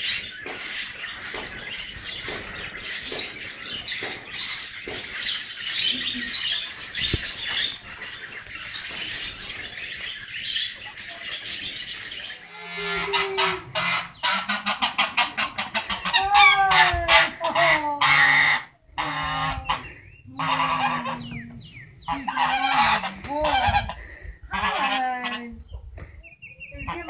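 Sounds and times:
goose honking: 12.5 - 25.4.

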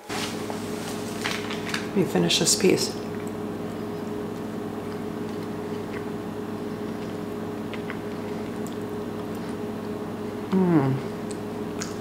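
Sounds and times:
low hum of held tones: 0.0 - 12.0
soft chewing clicks: 3.1 - 12.0.

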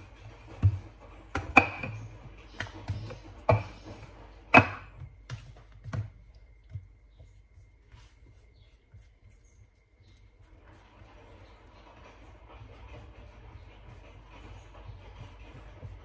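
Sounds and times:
knife scraping spread on dough: 7.6 - 16.0.

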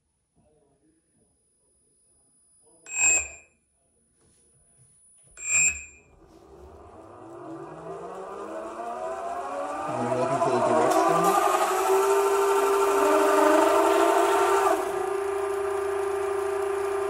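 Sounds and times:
short ringing tones: 2.6 - 3.6, 5.1 - 6.2
electric motor whine: 6.1 - 17.0.

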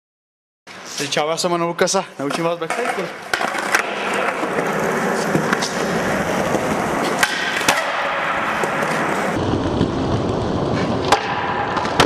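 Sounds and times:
skateboard wheels rolling on concrete: 2.1 - 12.0
skateboard clacks: 2.3 - 9.4, 10.7 - 12.0.

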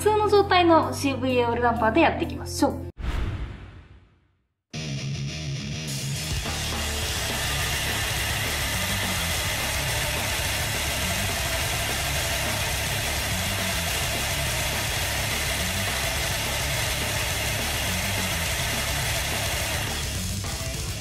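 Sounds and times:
suspension test rig running: 6.0 - 21.0.

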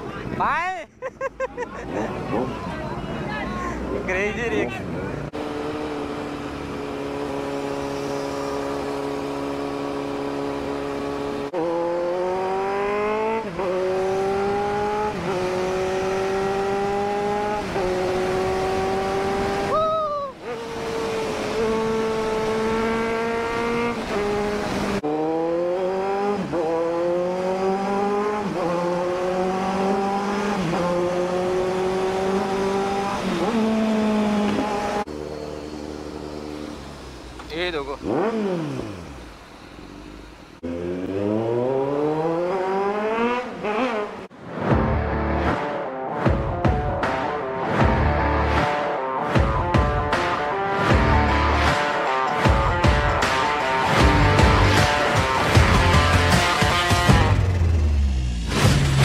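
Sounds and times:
motorcycle engine accelerating: 5.3 - 19.8, 20.4 - 59.0.

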